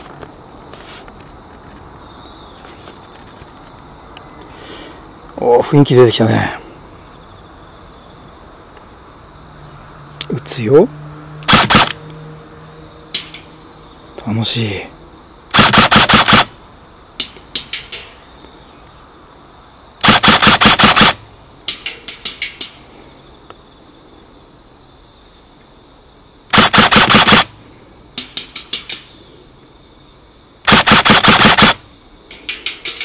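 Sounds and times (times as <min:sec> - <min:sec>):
airsoft gun full-auto bursts: 0:11.4 - 0:12.0, 0:15.5 - 0:16.5, 0:20.0 - 0:21.2, 0:26.5 - 0:27.5, 0:30.7 - 0:31.8
pellets clicking on metal target: 0:32.3 - 0:33.0.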